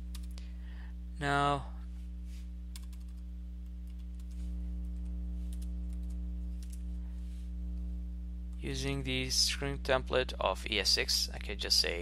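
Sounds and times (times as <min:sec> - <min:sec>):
steady electrical hum: 0:00.0 - 0:12.0
computer keyboard keystrokes: 0:02.7 - 0:03.2.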